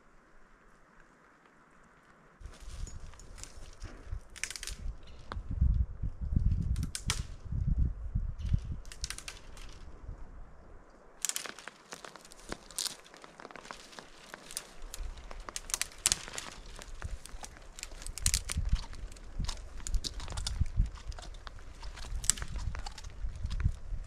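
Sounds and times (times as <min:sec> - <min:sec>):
dry twigs snapping: 0:02.4 - 0:05.5, 0:06.6 - 0:07.4, 0:08.4 - 0:10.0, 0:11.2 - 0:24.0.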